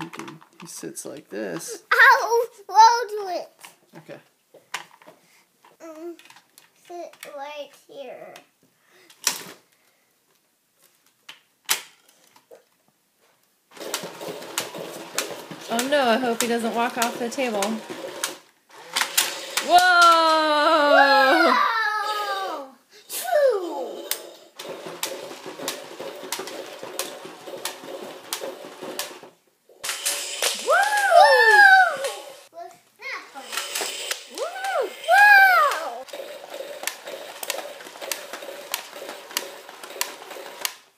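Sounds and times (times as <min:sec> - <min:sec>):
toy motor whirring: 0:13.8 - 0:20.1, 0:23.6 - 0:32.5, 0:33.3 - 0:40.8
toy legs clicking: 0:13.8 - 0:20.5, 0:23.9 - 0:32.5, 0:33.4 - 0:40.8
plastic toy parts clicking: 0:33.4 - 0:40.8.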